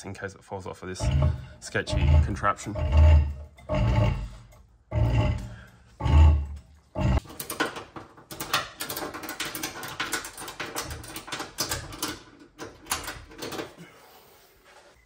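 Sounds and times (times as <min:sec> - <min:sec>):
clicks and knocks of axle: 0:07.1 - 0:13.8.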